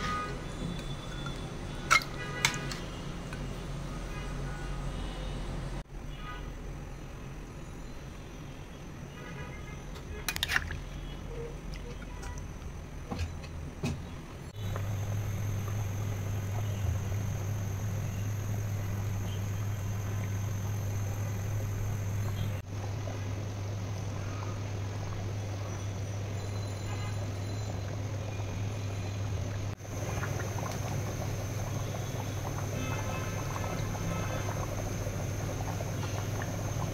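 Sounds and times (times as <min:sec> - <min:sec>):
pot boiling and bubbling: 0:00.0 - 0:05.9, 0:06.6 - 0:36.9
constant low hum: 0:10.0 - 0:36.9.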